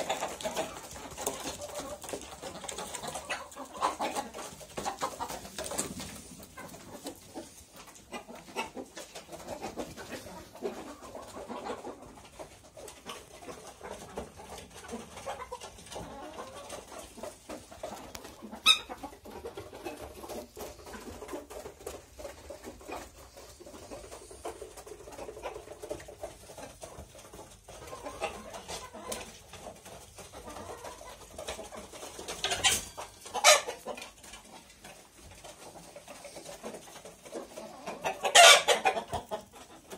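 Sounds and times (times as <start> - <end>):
hens clucking: 0.0 - 39.9.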